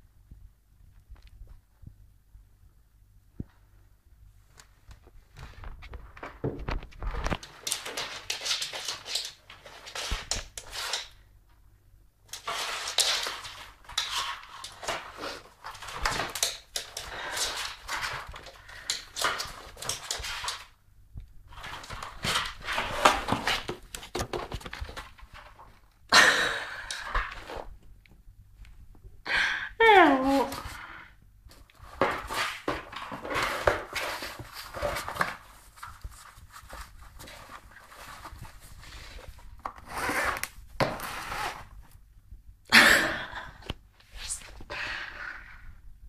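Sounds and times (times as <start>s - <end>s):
cat scraping against cardboard: 12.3s - 16.2s, 21.5s - 25.0s, 31.8s - 41.8s.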